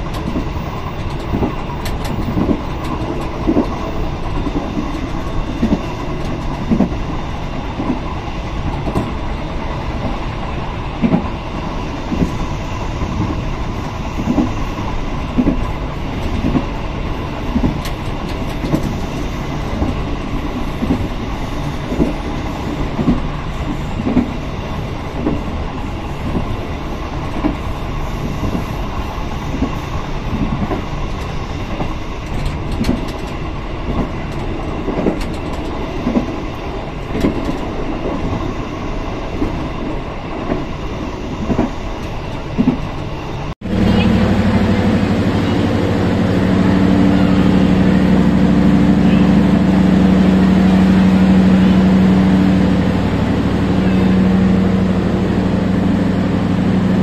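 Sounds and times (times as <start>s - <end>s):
train wheels clicking over rail joints: 0.0s - 9.3s, 13.0s - 24.5s, 27.3s - 38.4s
train engine hum: 0.0s - 57.0s.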